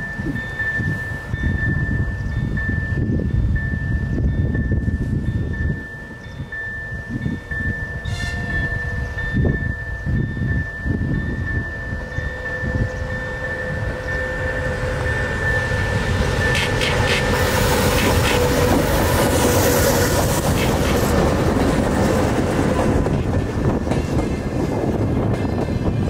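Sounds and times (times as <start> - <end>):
diesel locomotive engine rumble: 0.0 - 26.0
train wheels clacking: 12.4 - 26.0.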